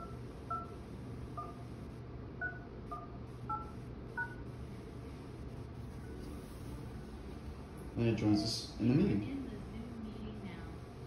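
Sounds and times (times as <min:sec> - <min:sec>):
keypad touch-tone beeps: 0:00.0 - 0:00.8, 0:01.4 - 0:01.6, 0:02.4 - 0:04.4
low steady hum: 0:00.0 - 0:11.0.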